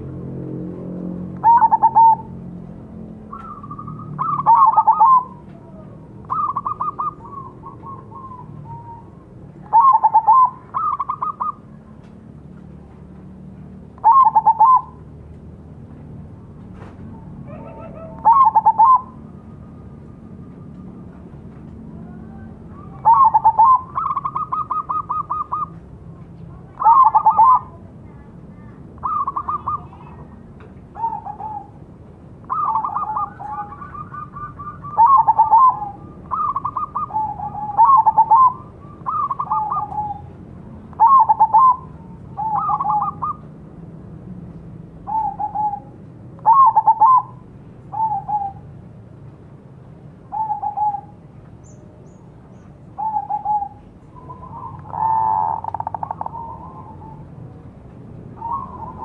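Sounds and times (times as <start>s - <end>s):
dove cooing: 1.4s - 12.0s, 14.0s - 15.0s, 16.8s - 25.9s, 26.5s - 31.8s, 32.4s - 43.5s, 45.0s - 48.7s, 50.3s - 52.2s, 52.9s - 57.6s, 58.3s - 59.0s.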